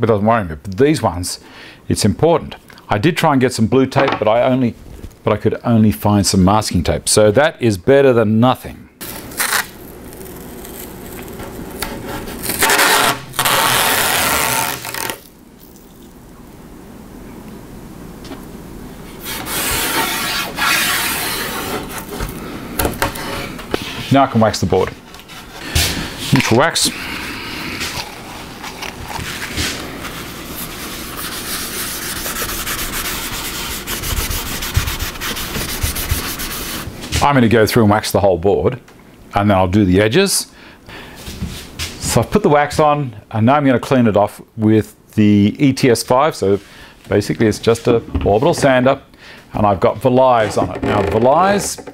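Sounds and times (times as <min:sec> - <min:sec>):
masking tape ripping off roll: 0:09.0 - 0:16.0, 0:19.2 - 0:24.0
wax rubbed onto wood: 0:19.1 - 0:22.4, 0:26.3 - 0:36.9.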